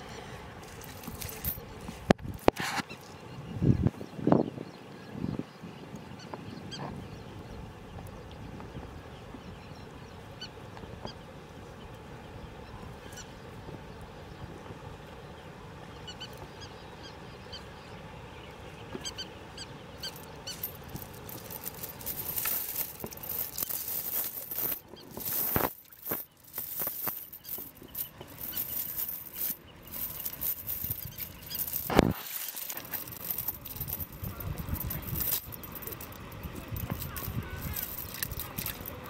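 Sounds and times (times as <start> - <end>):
metal chain rattling: 0.7 - 1.6, 20.0 - 39.0.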